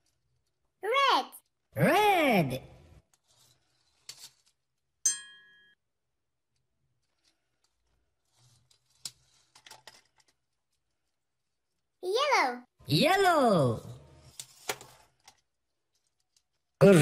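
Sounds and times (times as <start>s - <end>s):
toy cars clicking and scraping: 0.0s - 0.7s, 3.0s - 4.9s, 6.5s - 11.9s, 14.1s - 16.8s.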